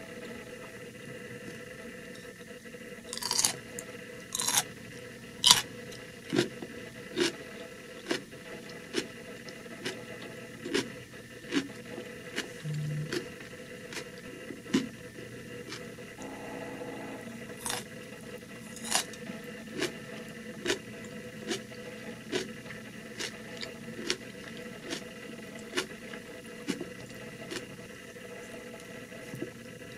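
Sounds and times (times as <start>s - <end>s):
crunchy chewing of pickle: 3.1s - 4.7s, 5.4s - 16.1s, 17.6s - 29.5s.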